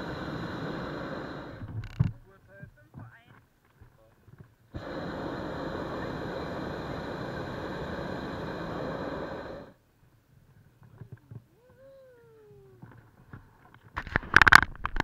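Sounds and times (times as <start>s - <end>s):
propane burner blast: 0.0s - 2.2s, 4.7s - 9.8s.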